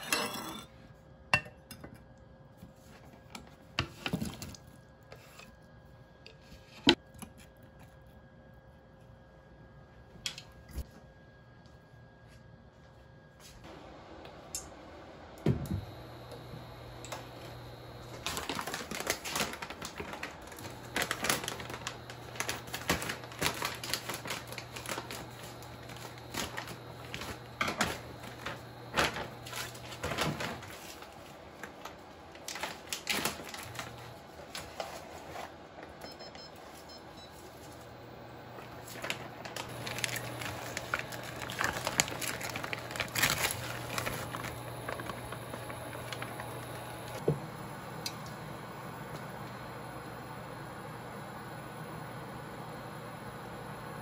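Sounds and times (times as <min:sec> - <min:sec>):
plastic bags handled: 0:17.1 - 0:36.0, 0:37.4 - 0:47.4.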